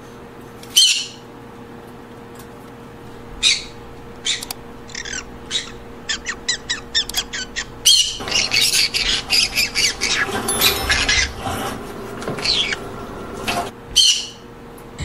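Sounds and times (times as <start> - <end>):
parrots squawking: 3.1 - 14.2.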